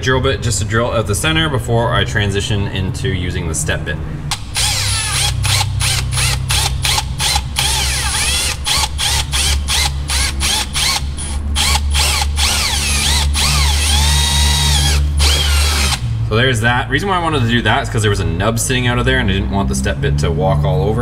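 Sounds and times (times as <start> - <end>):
cordless drill boring plastic: 4.3 - 16.0.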